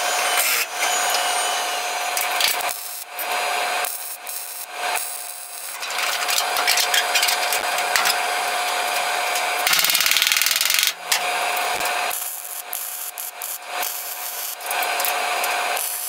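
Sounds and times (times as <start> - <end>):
tool scraping sheet metal: 5.8 - 11.9.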